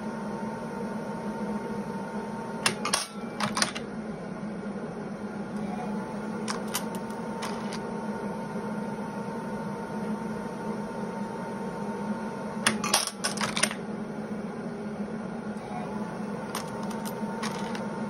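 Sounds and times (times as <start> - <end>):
brass cases clinking: 16.5 - 17.8.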